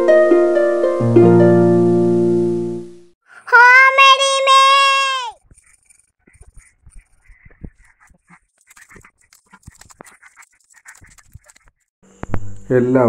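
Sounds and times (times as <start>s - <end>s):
harp-like plucked arpeggio: 0.0s - 2.9s.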